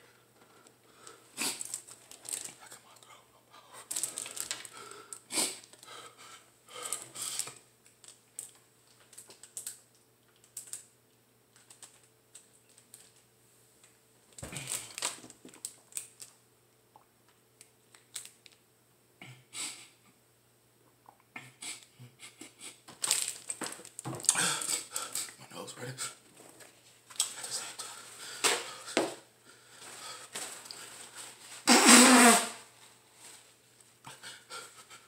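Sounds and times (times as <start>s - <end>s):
plastic bottle crinkling: 1.6s - 2.6s, 3.9s - 4.7s, 14.4s - 16.4s, 22.9s - 25.3s.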